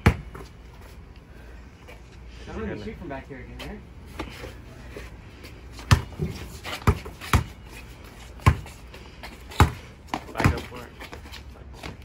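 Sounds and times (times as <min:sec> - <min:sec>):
basketball bouncing on bricks: 0:00.0 - 0:00.5, 0:05.8 - 0:07.6, 0:08.4 - 0:08.8, 0:09.5 - 0:10.8.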